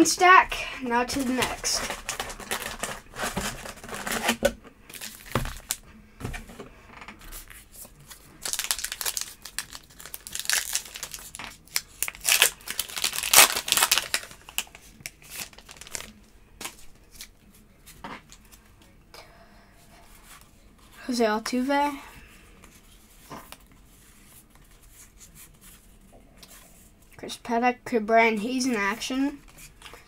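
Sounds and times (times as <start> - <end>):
card wrappers crinkling and tearing: 1.2 - 5.8, 7.4 - 17.3.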